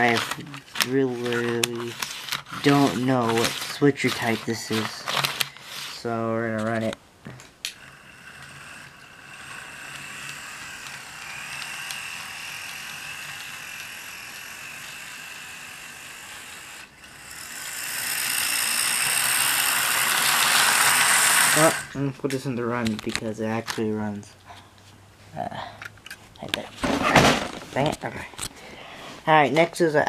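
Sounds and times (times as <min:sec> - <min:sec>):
model train motor whirring: 0:00.0 - 0:06.1, 0:07.6 - 0:22.0.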